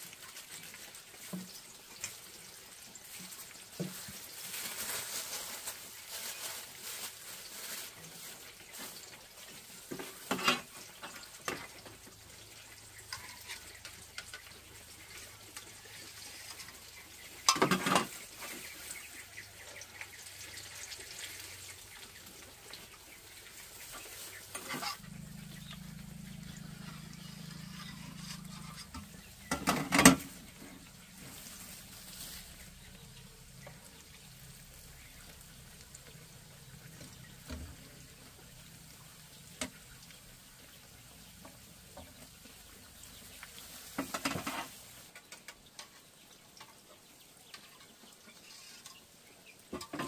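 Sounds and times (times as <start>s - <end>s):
light sizzle: 0.0s - 50.0s
utensils clinking on cookware: 17.4s - 18.2s.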